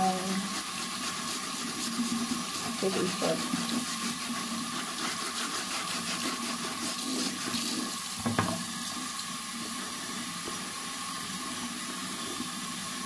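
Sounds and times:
tap water splashing into basin: 7.5s - 9.4s
knock: 8.2s - 8.6s.

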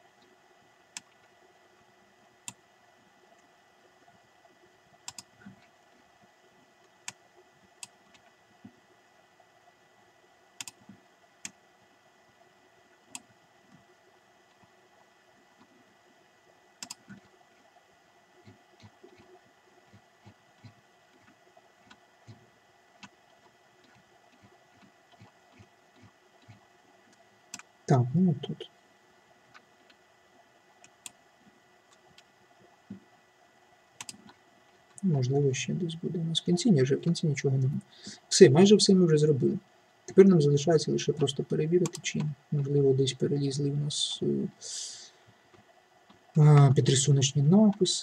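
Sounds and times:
computer mouse clicking: 5.0s - 5.7s, 10.6s - 11.6s, 16.8s - 17.4s, 34.0s - 35.0s.

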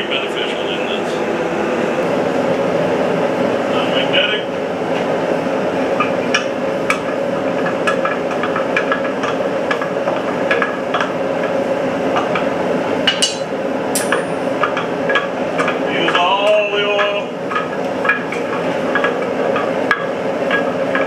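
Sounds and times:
forge burner roaring: 0.0s - 21.0s
steel tongs clinking on metal: 13.1s - 14.4s.

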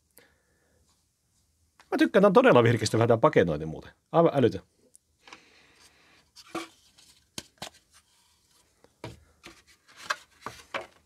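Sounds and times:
cardboard rustling: 6.3s - 11.0s.

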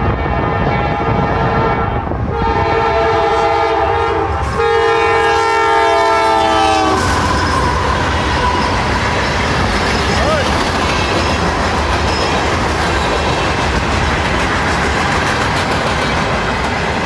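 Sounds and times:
freight cars rumbling past: 0.0s - 17.0s
locomotive air horn blasts: 0.1s - 8.8s.

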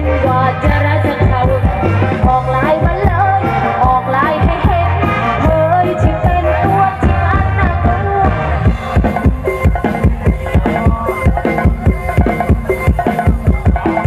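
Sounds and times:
person singing: 0.0s - 12.4s
heavy bass line: 0.0s - 14.0s
drum beat: 7.0s - 14.0s.

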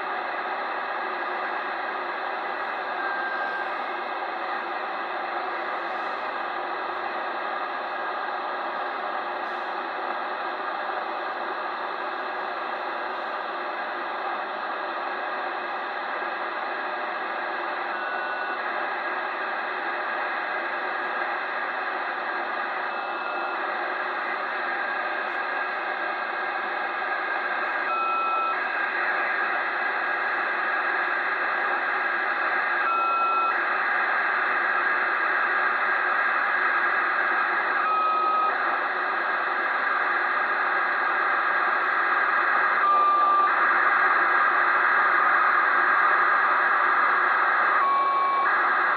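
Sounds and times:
radio hiss: 0.0s - 32.9s, 33.5s - 48.9s
radio data signal bursts: 15.9s - 48.9s.

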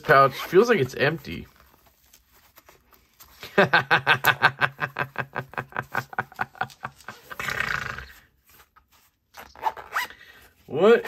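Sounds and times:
man laughing hard: 3.4s - 7.5s.

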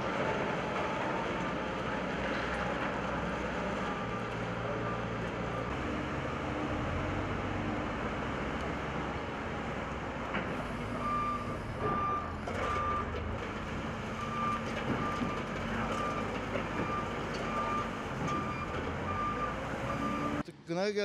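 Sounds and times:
diesel engine running: 0.0s - 21.0s
reversing alarm beeping: 10.6s - 13.2s, 14.2s - 20.4s.

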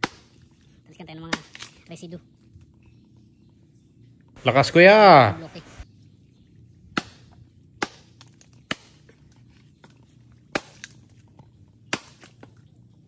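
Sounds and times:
axe chopping into log: 0.0s - 0.4s, 7.0s - 9.0s, 10.5s - 11.0s, 11.9s - 12.5s.

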